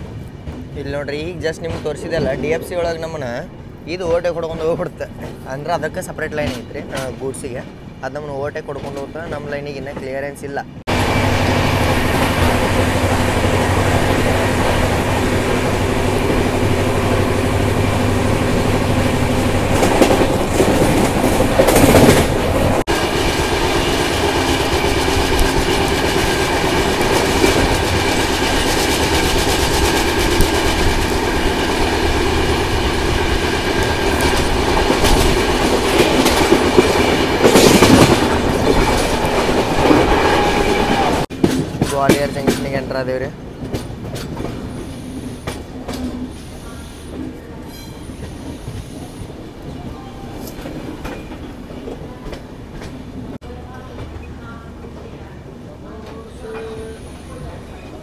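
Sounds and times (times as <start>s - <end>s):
train rumbling on track: 0.0s - 58.0s
wheels clacking over rail joints: 4.0s - 10.4s, 11.8s - 49.1s.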